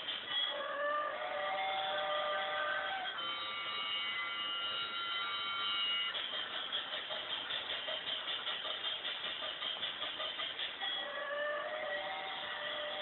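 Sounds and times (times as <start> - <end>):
toy train chugging hiss: 0.0 - 13.0
toy train whistle: 0.3 - 6.3, 10.8 - 13.0.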